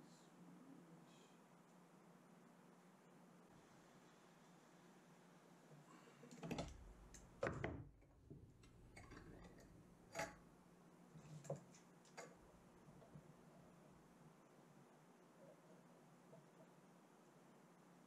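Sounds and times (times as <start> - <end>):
faint metal clicks and knocks: 5.8 - 10.5, 11.2 - 14.0.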